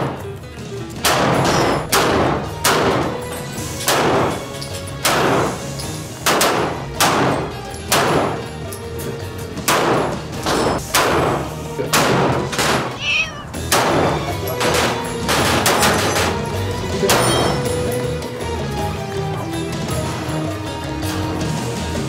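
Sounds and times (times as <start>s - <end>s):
background music: 0.0s - 22.0s
pistol shots: 1.0s - 8.6s, 9.6s - 13.0s, 13.6s - 17.7s
wavering high-pitched cry: 13.0s - 13.6s.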